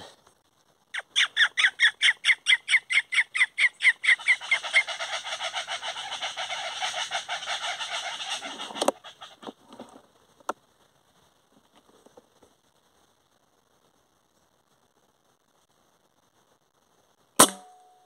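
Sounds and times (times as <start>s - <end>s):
birds calling raucously: 1.0s - 9.6s
sharp crack: 17.4s - 18.0s.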